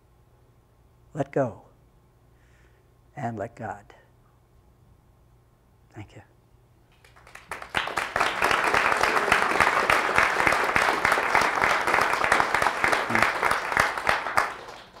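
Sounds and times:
congregation applauding: 7.0 - 15.0.

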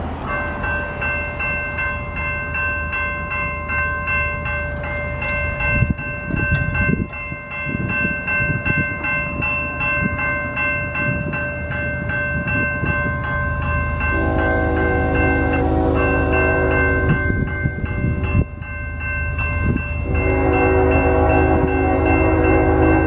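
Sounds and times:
railroad crossing bells ringing: 0.0 - 23.0.

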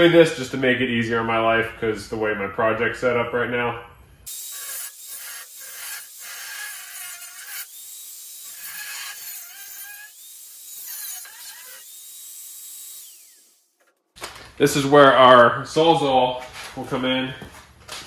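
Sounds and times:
angle grinder cutting steel: 4.3 - 14.0.

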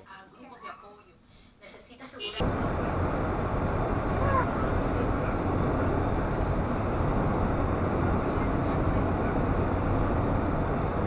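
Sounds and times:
van engine drone and tyre noise: 2.4 - 11.0.

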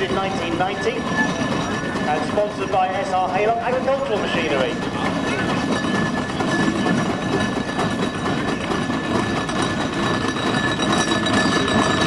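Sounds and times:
traction engine clattering past: 0.0 - 12.0.

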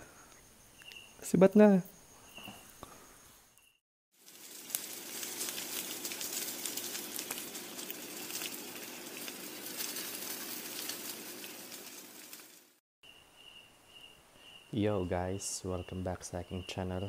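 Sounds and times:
steady hiss: 4.2 - 12.8.

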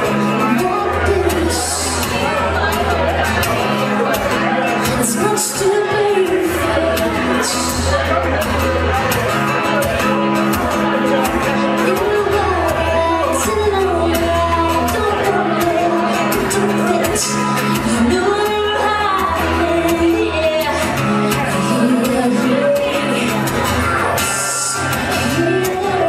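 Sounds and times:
acoustic guitar: 0.0 - 26.0
woman singing: 0.3 - 2.3, 4.8 - 7.9, 11.8 - 26.0.

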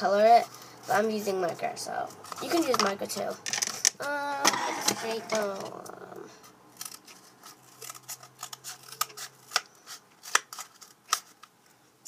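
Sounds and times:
scissors snipping cardboard: 7.7 - 11.3.

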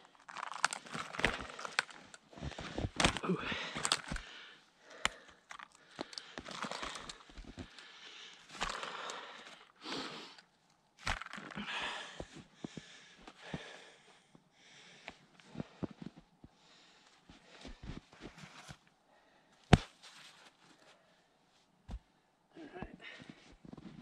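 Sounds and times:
clothing rustling: 19.7 - 22.1.

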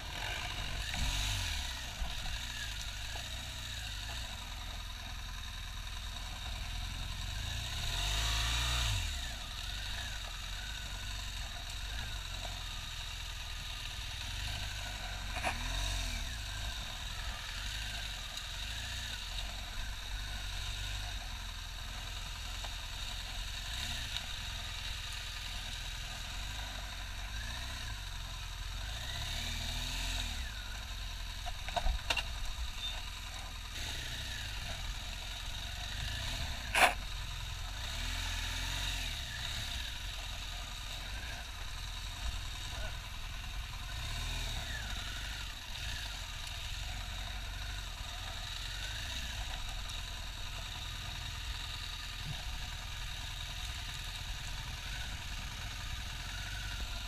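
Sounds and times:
motorcycle engine at low revs: 0.0 - 57.0.

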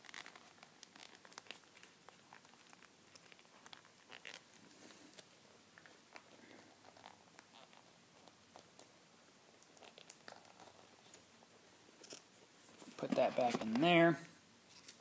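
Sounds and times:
watch strap clicks and rustles: 0.0 - 8.9.

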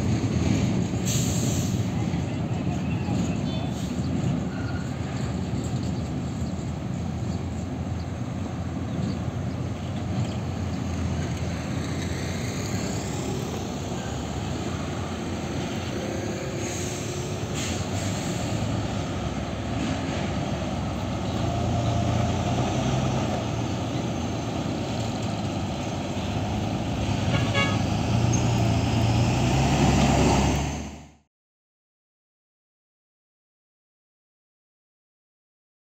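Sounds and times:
truck and motorcycle engines idling: 0.0 - 28.5
train rolling past: 0.0 - 30.8
short horn toot: 27.3 - 27.9.

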